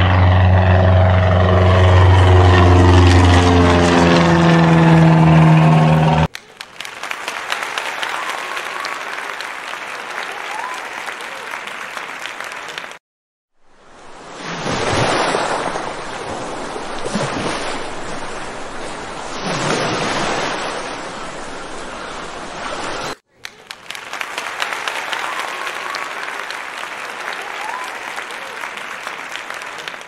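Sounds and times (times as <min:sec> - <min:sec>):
applause: 0:06.2 - 0:13.0, 0:23.3 - 0:30.0
sea waves breaking on shore: 0:13.8 - 0:23.2.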